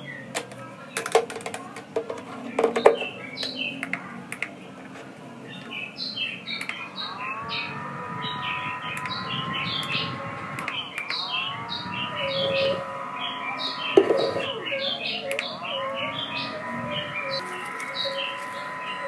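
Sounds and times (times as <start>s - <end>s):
click: 3.4s - 4.5s, 6.6s - 6.8s, 10.6s - 11.2s, 15.3s - 15.5s.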